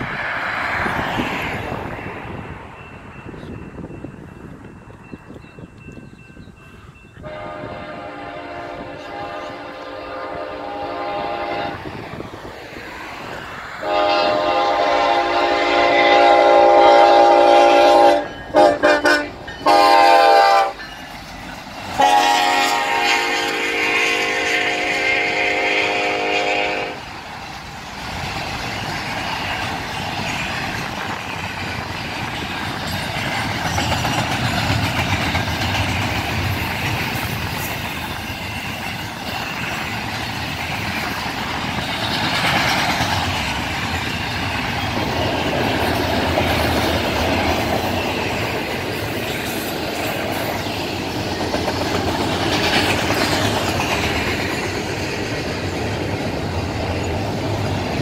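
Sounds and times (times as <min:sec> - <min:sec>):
train rumble and wheel clatter: 0:00.0 - 0:58.0
locomotive air horn blasts: 0:07.2 - 0:11.9, 0:13.8 - 0:20.8, 0:22.0 - 0:27.1.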